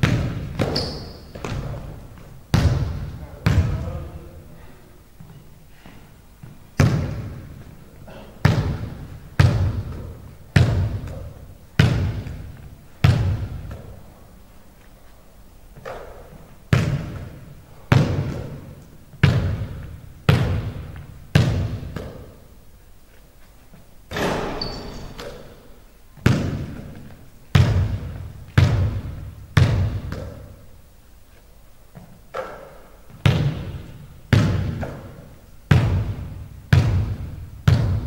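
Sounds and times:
basketball bouncing on wooden floor: 0.0s - 3.9s, 6.4s - 7.6s, 8.4s - 14.0s, 15.8s - 22.4s, 26.2s - 30.5s, 31.9s - 38.0s.

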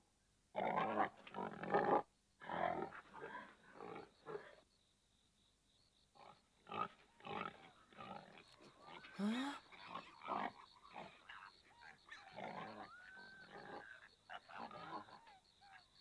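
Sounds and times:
wild boar calls: 6.2s - 15.9s.

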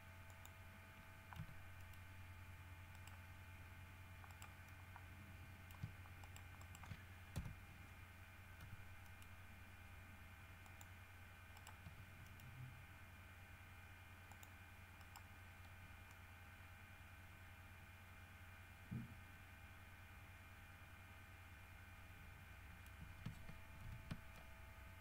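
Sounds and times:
low hum: 0.0s - 25.0s
keyboard and mouse clicks: 1.3s - 2.0s, 2.9s - 3.2s, 4.2s - 7.6s, 8.6s - 9.3s, 11.5s - 12.6s, 14.3s - 16.2s, 22.8s - 24.5s.

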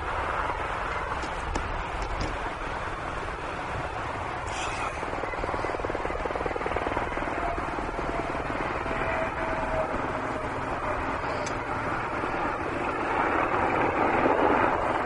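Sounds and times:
jet engine rushing noise: 0.0s - 12.8s
faint jet whine: 0.0s - 15.0s.

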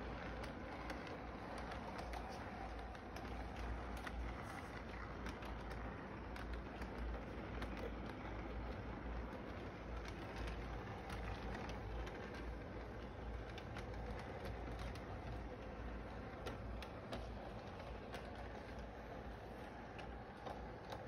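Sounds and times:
faint irregular clicks: 0.0s - 21.0s
model train rumbling on track: 0.0s - 21.0s.

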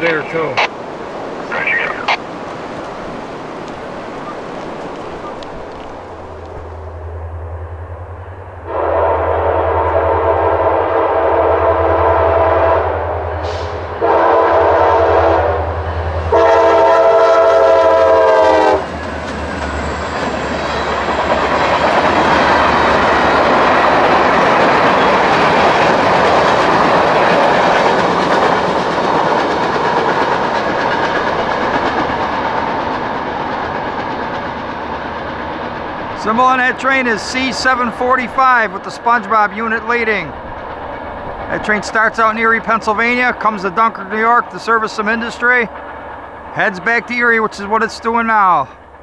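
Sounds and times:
locomotive horn blasts: 8.6s - 18.9s
train wheels clattering on rails: 17.6s - 38.0s.

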